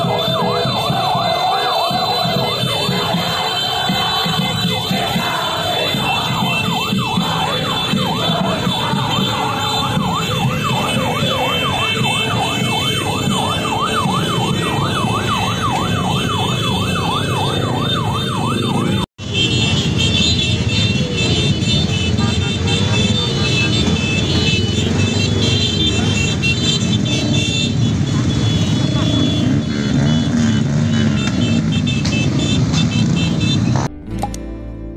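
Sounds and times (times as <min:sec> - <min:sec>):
electronic siren yelping: 0:00.0 - 0:19.8
crowd noise: 0:00.0 - 0:34.3
motorcycle engines rumbling: 0:00.0 - 0:34.3.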